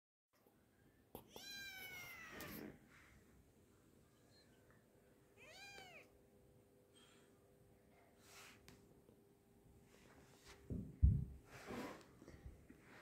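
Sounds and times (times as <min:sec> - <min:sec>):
kitten meowing: 0:01.3 - 0:02.7, 0:05.4 - 0:06.1.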